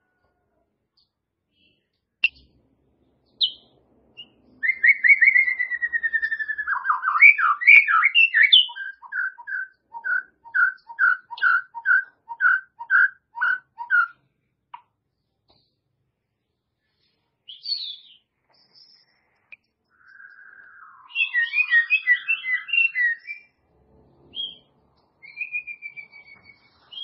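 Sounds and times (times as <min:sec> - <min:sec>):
bird singing whistles: 0:03.4 - 0:14.2, 0:17.5 - 0:19.2, 0:20.0 - 0:23.6, 0:24.3 - 0:27.0.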